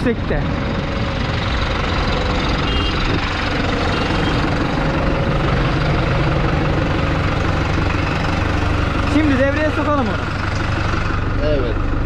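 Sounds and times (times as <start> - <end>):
tractor diesel engine idling: 0.0 - 12.0.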